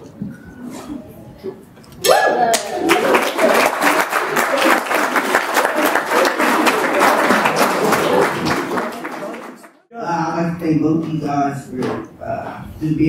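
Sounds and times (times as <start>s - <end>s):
people cheering: 2.0s - 9.7s
people applauding: 2.0s - 9.8s.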